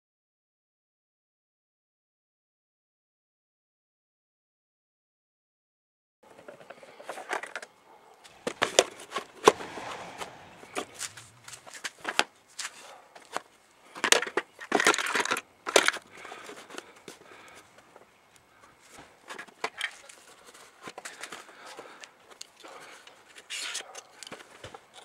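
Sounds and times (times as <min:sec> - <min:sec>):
plastic parts knocking and scraping: 0:13.3 - 0:17.3.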